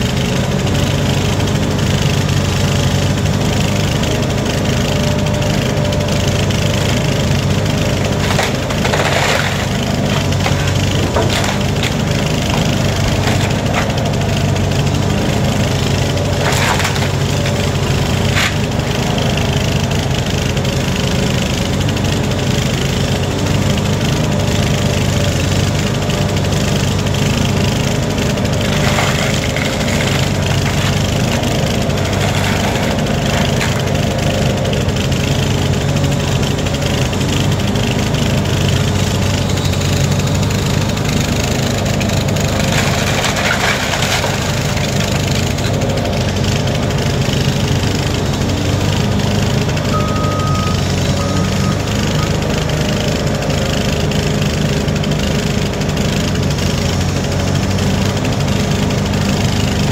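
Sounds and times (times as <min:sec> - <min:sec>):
excavator engine running: 0:00.0 - 0:59.9
wood cracking and crunching: 0:00.1 - 0:49.8.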